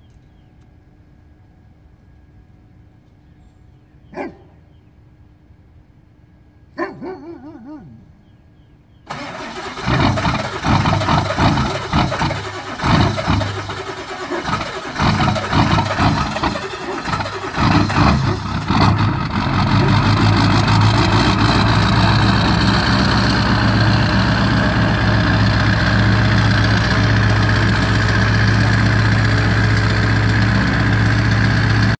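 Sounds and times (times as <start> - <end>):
starter motor cranking: 9.1 - 19.0
diesel engine idling: 9.1 - 31.9
diesel engine running ragged: 9.1 - 31.9.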